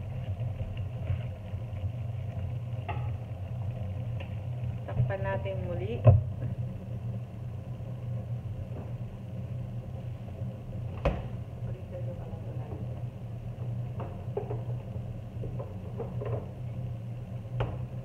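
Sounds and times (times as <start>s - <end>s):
low mechanical hum: 0.0s - 18.0s.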